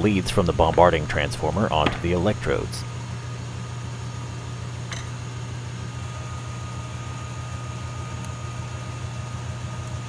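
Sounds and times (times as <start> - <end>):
vacuum pump humming: 0.0 - 10.0.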